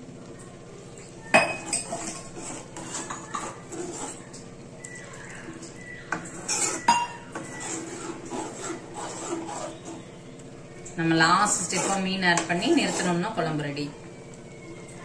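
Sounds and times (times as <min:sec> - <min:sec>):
ladle scraping metal pan: 0:01.6 - 0:04.4, 0:06.2 - 0:10.2, 0:11.3 - 0:13.6.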